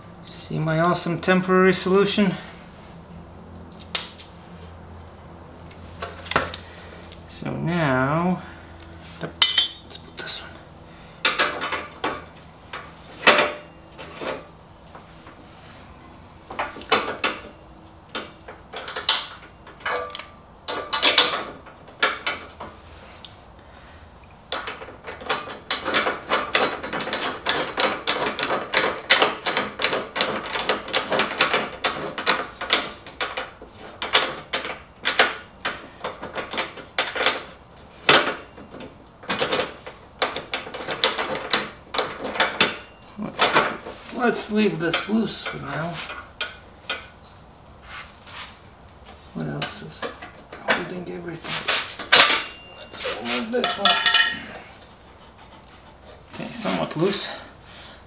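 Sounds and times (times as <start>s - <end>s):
metal parts knocking: 9.4s - 10.0s.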